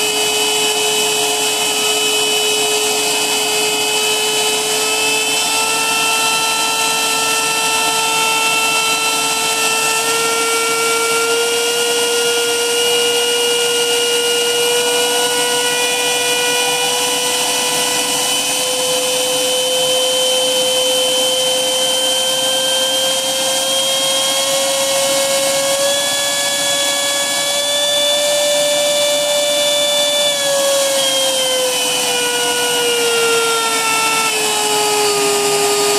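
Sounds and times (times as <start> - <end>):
electric motor and propeller whine: 0.0 - 35.9.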